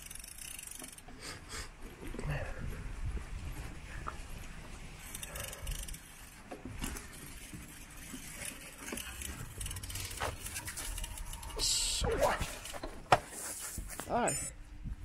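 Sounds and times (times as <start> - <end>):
wind rumbling on microphone: 2.1 - 5.0, 14.7 - 15.0.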